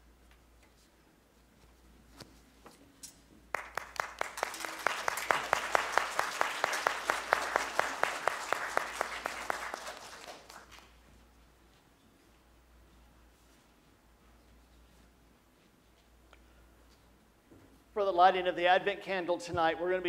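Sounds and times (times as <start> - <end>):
crowd applauding: 3.5 - 10.9
close person clapping steadily: 3.5 - 11.0.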